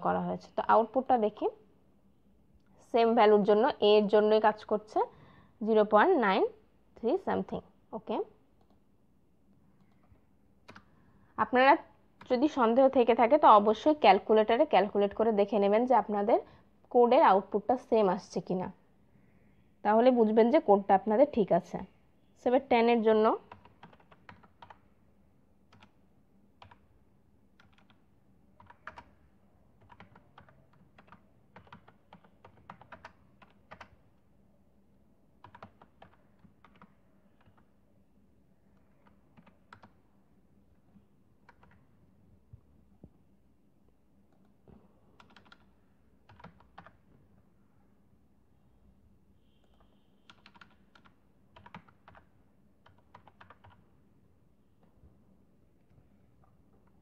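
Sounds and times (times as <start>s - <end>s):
faint keyboard typing: 8.0s - 8.9s, 9.5s - 11.0s, 12.1s - 12.6s, 23.4s - 25.0s, 25.6s - 34.3s, 35.4s - 37.8s, 38.6s - 43.3s, 43.9s - 47.5s, 49.6s - 54.0s, 55.8s - 57.0s.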